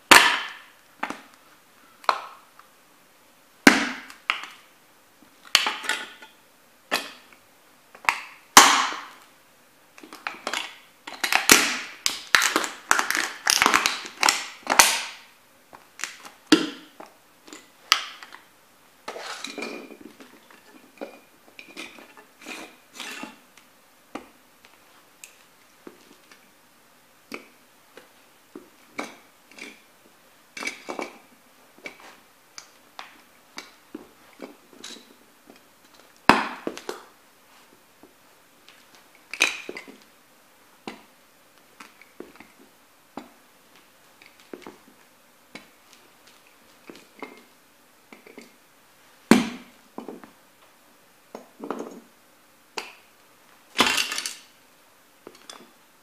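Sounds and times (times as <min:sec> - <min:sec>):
plastic crunching: 0:11.1 - 0:15.2
broken pieces clicking and scraping: 0:53.8 - 0:54.5.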